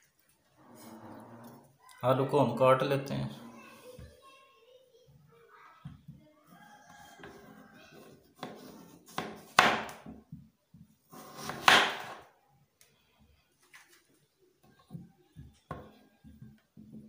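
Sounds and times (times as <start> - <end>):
knife slicing through potato: 8.4 - 10.0, 11.1 - 12.2.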